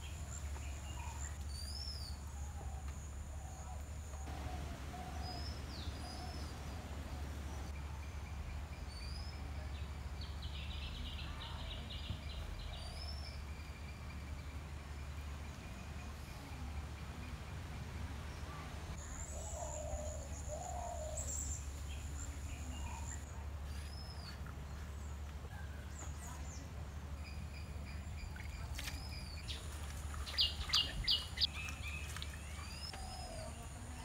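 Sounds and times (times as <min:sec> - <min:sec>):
birds chirping and whistling: 0:29.0 - 0:33.6.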